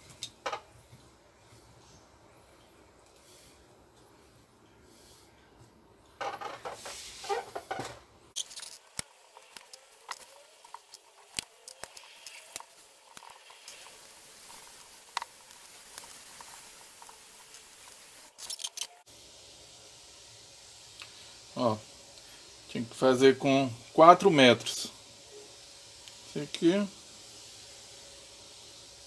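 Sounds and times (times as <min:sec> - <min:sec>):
cord rustling and rubbing: 0:06.2 - 0:19.0.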